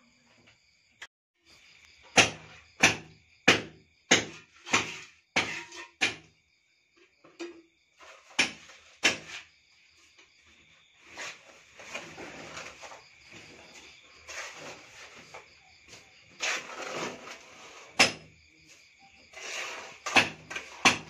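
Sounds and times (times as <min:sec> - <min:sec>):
crickets chirping: 0:00.0 - 0:21.0
trowel knocking on bucket: 0:02.2 - 0:06.3, 0:19.5 - 0:21.0.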